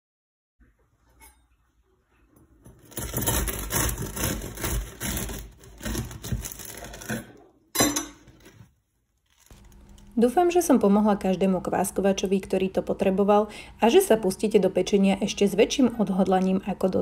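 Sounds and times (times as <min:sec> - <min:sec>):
bread knife sawing crusty loaf: 0:02.8 - 0:07.3.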